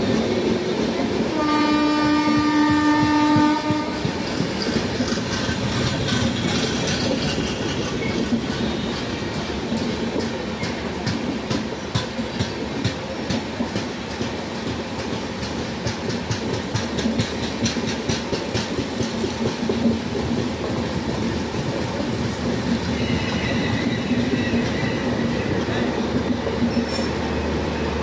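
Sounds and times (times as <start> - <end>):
train rumbling: 0.0 - 28.0
wheels clacking over rail joints: 2.0 - 27.4
high wheel squeal: 23.0 - 25.5.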